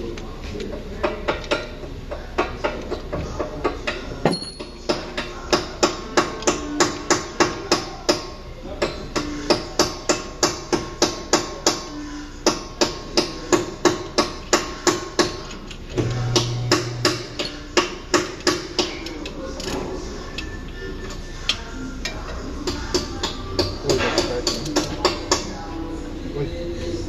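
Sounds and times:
sharp metallic knocks ringing: 0:04.3 - 0:04.8.

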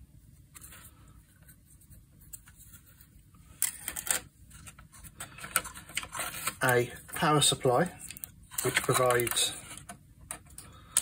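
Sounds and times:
clicking and clatter of parts: 0:08.0 - 0:11.0.

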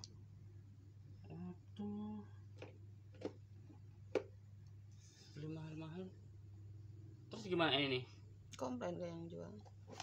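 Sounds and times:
steady low hum: 0:00.0 - 0:10.0
person humming: 0:01.3 - 0:02.4.

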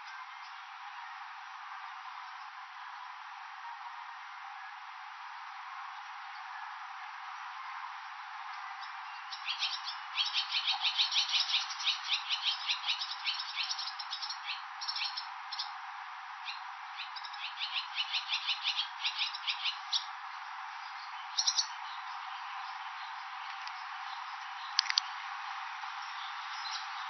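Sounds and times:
background hiss: 0:00.0 - 0:27.0
swallow twittering: 0:09.3 - 0:15.7, 0:21.3 - 0:22.8.

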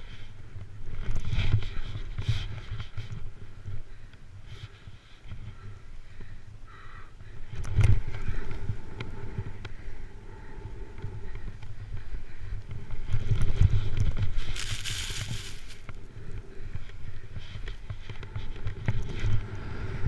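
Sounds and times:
wind rumbling on microphone: 0:00.0 - 0:20.0
snowboard sliding over snow: 0:13.6 - 0:15.9
snowboard edge scraping snow: 0:14.4 - 0:15.9.

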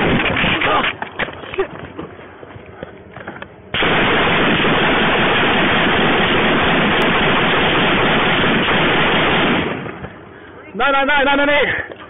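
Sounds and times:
loud static-like hiss: 0:03.7 - 0:11.8.

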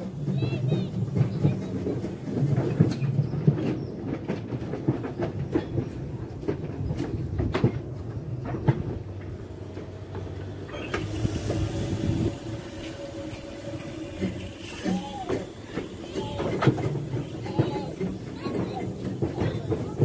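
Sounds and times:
steam locomotive rumbling: 0:00.0 - 0:20.0
steam hissing: 0:10.7 - 0:20.0.

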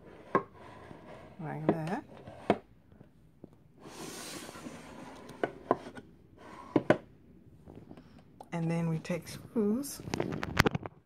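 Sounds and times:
drawer sliding: 0:03.8 - 0:07.0.

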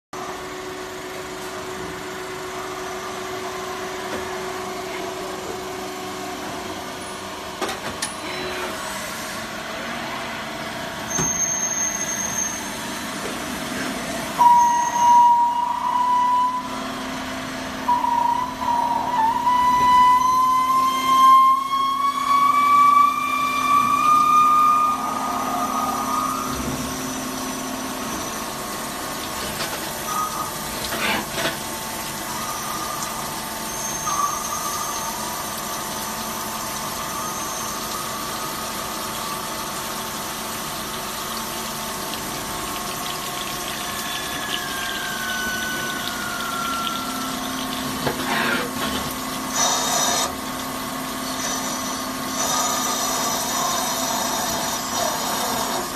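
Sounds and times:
lathe machine humming and whining: 0:12.6 - 0:40.9, 0:42.3 - 0:55.9
coolant splashing: 0:22.8 - 0:54.1.

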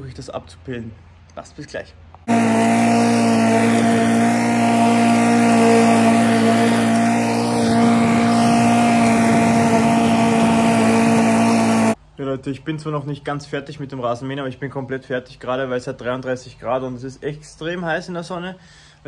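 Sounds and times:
lawnmower engine running: 0:02.3 - 0:12.0.

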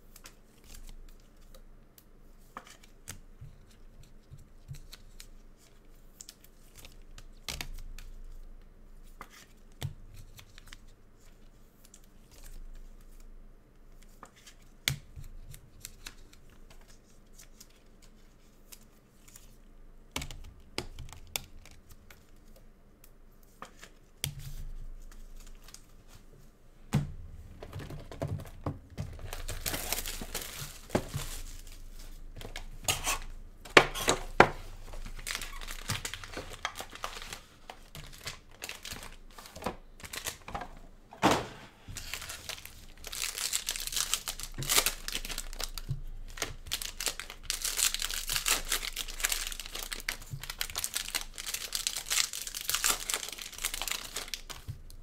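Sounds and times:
cards tapping and rustling: 0:26.9 - 0:40.5
plastic wrapper tearing: 0:29.1 - 0:33.3, 0:33.9 - 0:40.4, 0:42.0 - 0:54.7.

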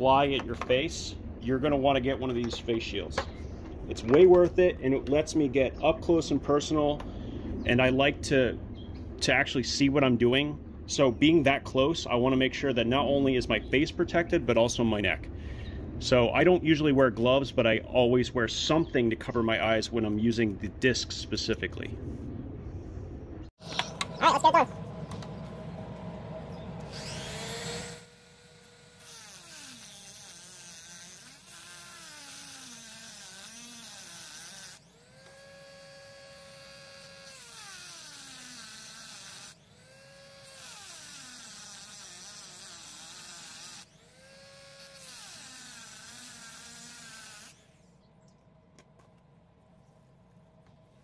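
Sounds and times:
rotary tool whining cutting metal: 0:26.8 - 0:47.9.

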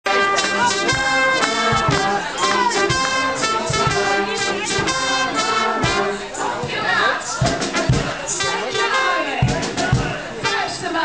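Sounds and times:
brass band playing: 0:00.0 - 0:11.0
low drum hits: 0:00.4 - 0:06.8, 0:07.4 - 0:08.8, 0:09.4 - 0:10.4.

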